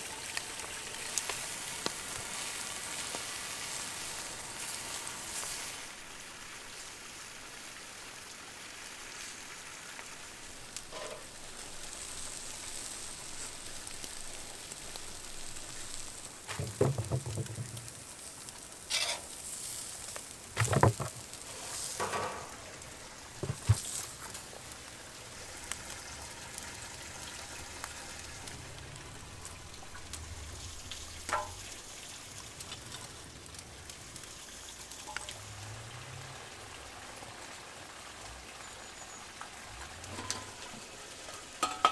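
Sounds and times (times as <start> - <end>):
steaks sizzling on a grill: 0.0 - 36.3
knocks and thuds: 16.5 - 18.0, 20.6 - 21.3, 23.4 - 23.9.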